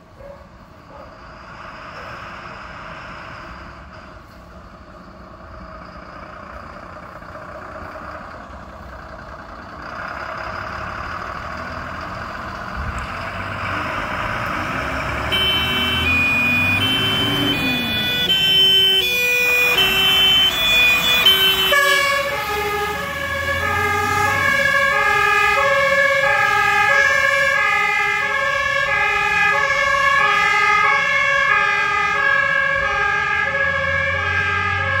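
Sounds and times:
alternating siren tones: 12.0 - 35.0
fire engine two-tone horn: 15.0 - 35.0.

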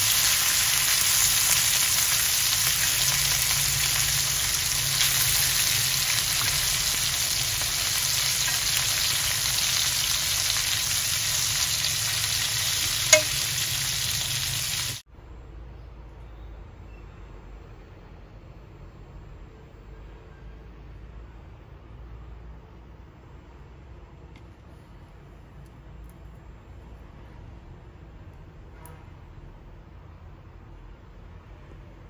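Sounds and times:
food sizzling in frying pan: 0.0 - 15.0.

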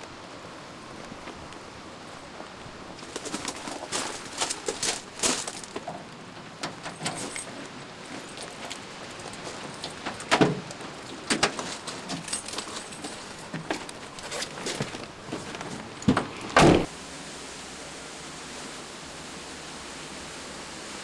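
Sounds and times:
steady hiss: 0.0 - 21.0
van door slamming: 16.6 - 16.9.

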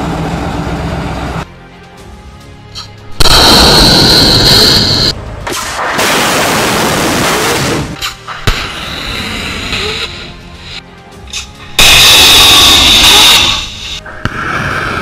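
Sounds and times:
loud launch blast: 3.2 - 5.1
rocket motor rushing with whine: 3.2 - 5.1.

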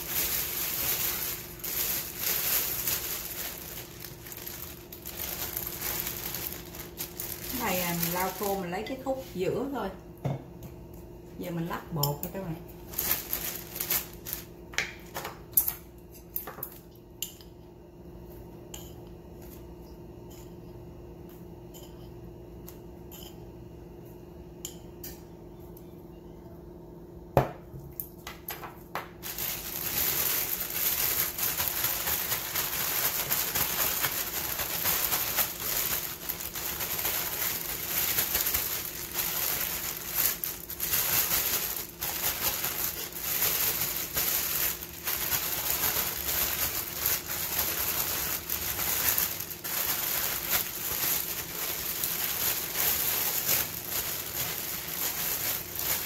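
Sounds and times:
plastic bag rustling: 0.0 - 9.8, 12.7 - 15.4, 29.1 - 56.0.

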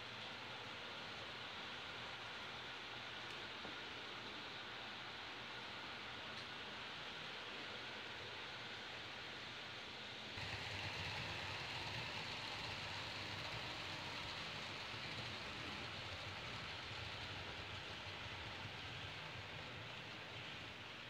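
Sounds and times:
model train rolling rumble: 10.4 - 21.0.

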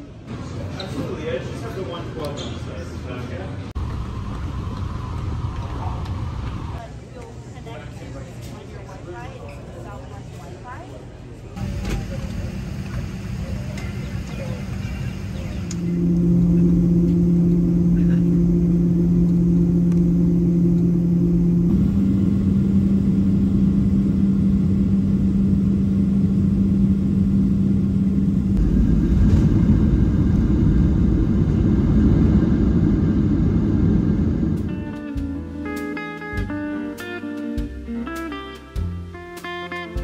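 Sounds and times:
jet engine drone in cabin: 3.8 - 6.8, 11.6 - 35.3
plane rolling on runway rumble: 3.8 - 6.8, 11.6 - 35.3.

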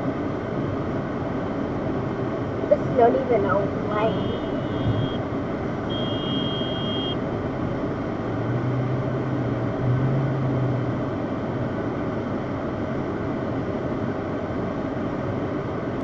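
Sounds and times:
car engine and tyres: 0.0 - 16.0
short high beep: 3.9 - 5.2, 5.9 - 7.2.

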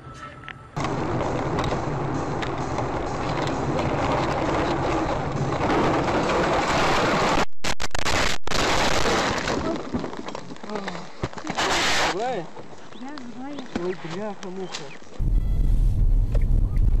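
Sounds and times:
moving car road and engine noise: 0.7 - 7.1.

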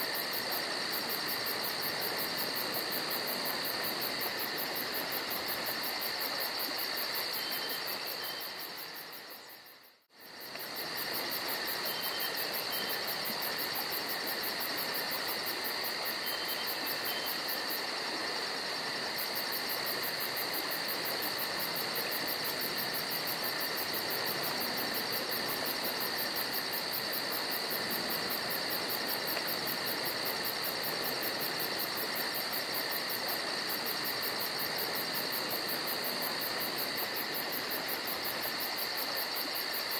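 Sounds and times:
insects trilling: 0.0 - 39.9.

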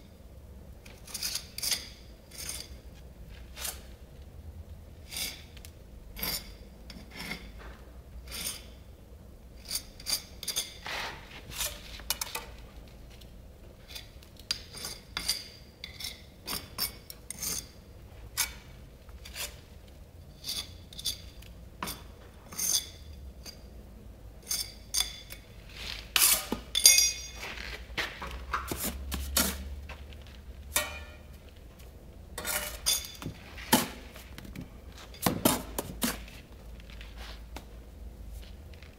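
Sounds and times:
trowel scraping against brick: 19.2 - 19.6, 20.3 - 21.3, 28.6 - 29.8, 32.4 - 34.4, 35.0 - 36.4.

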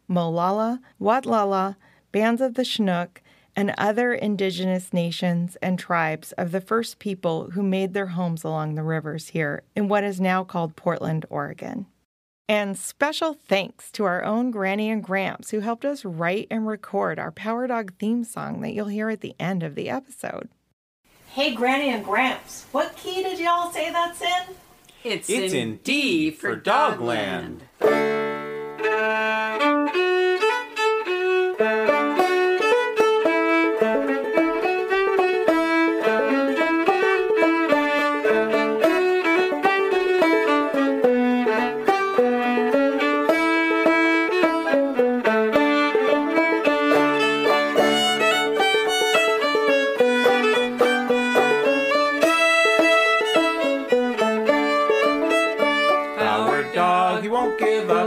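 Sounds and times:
fiddle melody: 25.3 - 58.0
banjo accompaniment: 26.6 - 58.0.

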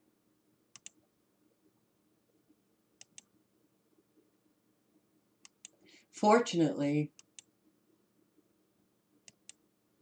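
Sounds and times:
computer mouse clicks: 0.7 - 1.0, 3.0 - 3.3, 5.4 - 5.8, 7.1 - 7.5, 9.2 - 9.6.

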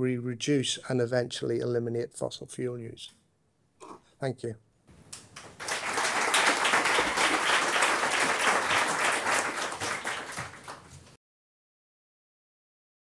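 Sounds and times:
audience applauding: 5.4 - 11.1.

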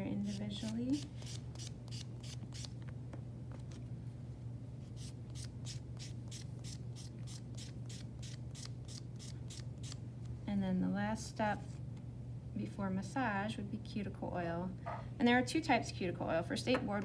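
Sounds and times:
steady low hum: 0.0 - 17.0
nail buffer scratching on fingernails: 0.2 - 2.8, 4.8 - 10.0.

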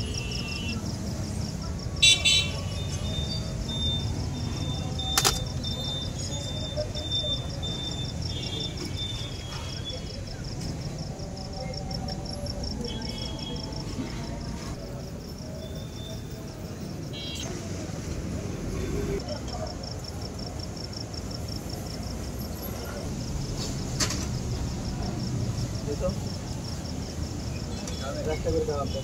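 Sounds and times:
traffic rumble: 0.0 - 29.0
vehicle horn toots: 2.0 - 2.7.

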